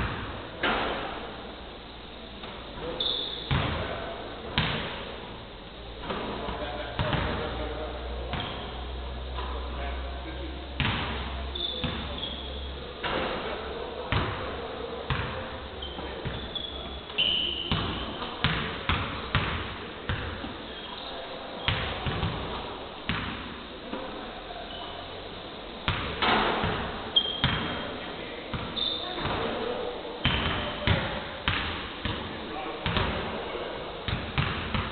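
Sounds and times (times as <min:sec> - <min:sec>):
shoe squeaks: 0:02.9 - 0:03.5, 0:11.5 - 0:12.7, 0:15.8 - 0:18.3, 0:20.6 - 0:21.8, 0:27.1 - 0:27.9, 0:28.7 - 0:29.3
basketballs bouncing on wooden floor: 0:07.0 - 0:07.4, 0:10.8 - 0:11.2, 0:17.7 - 0:20.4, 0:21.7 - 0:23.4, 0:25.9 - 0:27.8, 0:30.2 - 0:33.2, 0:34.1 - 0:34.9.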